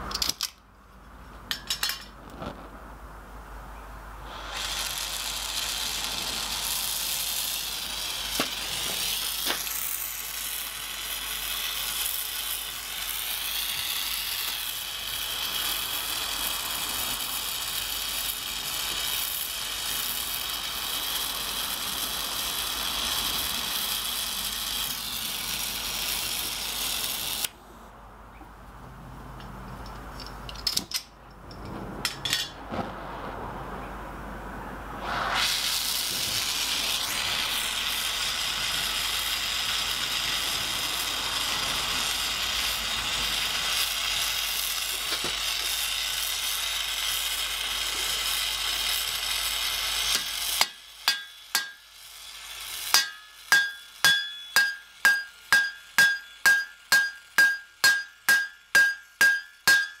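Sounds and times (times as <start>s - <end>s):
torch hissing: 4.2s - 27.5s, 32.6s - 33.8s, 34.8s - 60.0s
metal-on-metal strikes: 50.2s - 51.9s, 52.9s - 60.0s.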